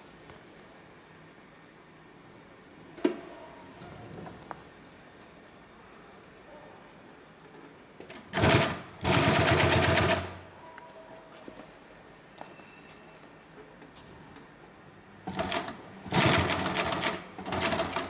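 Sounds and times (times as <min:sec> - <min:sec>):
industrial sewing machine stitching: 0:08.1 - 0:10.4, 0:15.3 - 0:18.0.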